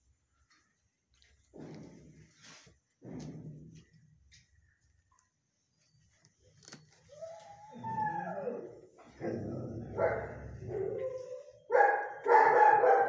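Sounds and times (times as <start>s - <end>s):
dog howling: 7.1s - 11.6s.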